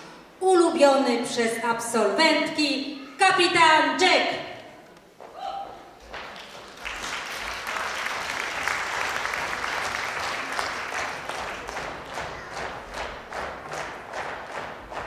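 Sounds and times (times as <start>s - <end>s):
audience applauding: 6.1s - 15.0s.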